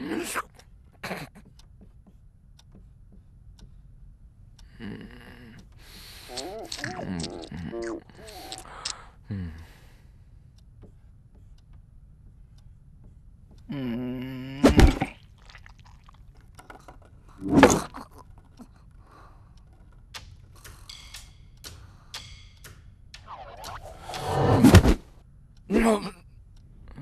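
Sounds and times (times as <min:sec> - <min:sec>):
faint clicks: 0:15.2 - 0:24.3.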